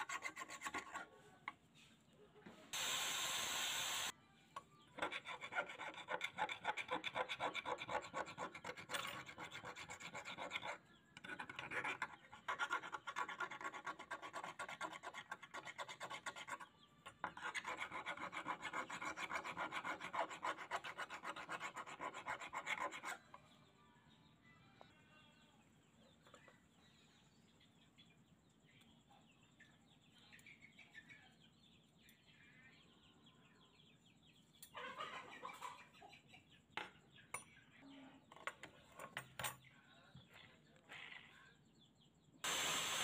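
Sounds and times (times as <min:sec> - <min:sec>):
file rasping on steel blade: 0:00.0 - 0:01.1, 0:05.0 - 0:23.4
loud steady hiss: 0:02.8 - 0:04.1, 0:42.4 - 0:43.0.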